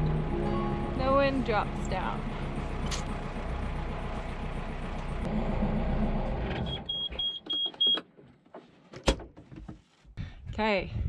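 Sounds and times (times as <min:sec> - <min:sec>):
boat engine running: 0:00.0 - 0:06.3
high alarm beeps: 0:06.7 - 0:08.0.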